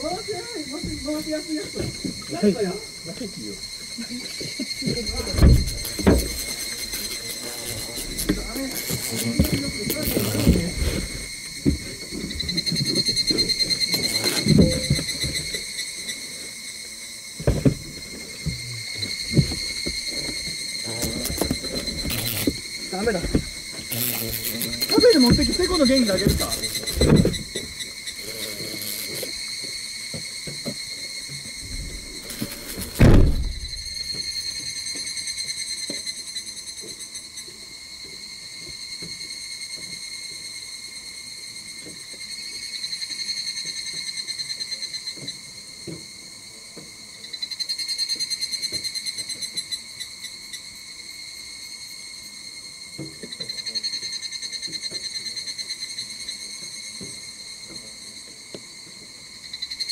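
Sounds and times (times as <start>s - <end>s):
insects chirring: 0.0s - 59.9s
loud thump: 5.2s - 6.4s, 17.4s - 17.9s, 31.6s - 34.0s.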